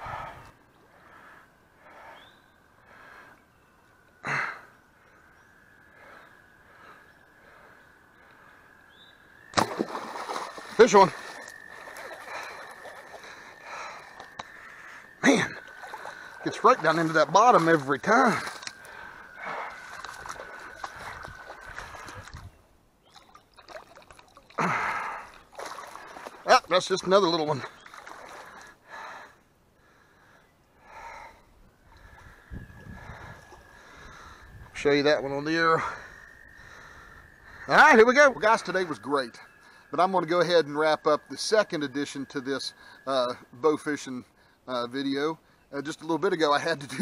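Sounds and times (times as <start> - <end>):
man breathing: 0.0 - 3.4, 5.9 - 8.7, 12.2 - 15.1, 18.4 - 22.4, 24.6 - 25.4, 28.1 - 34.6, 35.8 - 37.7
fish splashing in shallow water: 9.4 - 28.8, 33.0 - 34.4.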